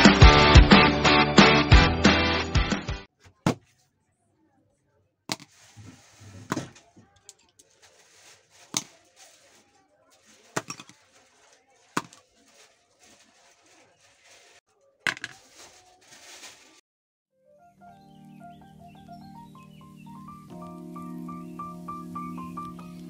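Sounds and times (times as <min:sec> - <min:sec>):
upbeat intro music: 0:00.0 - 0:03.1
light rustling: 0:05.5 - 0:14.6
pencils clicking on a book: 0:06.5 - 0:16.1.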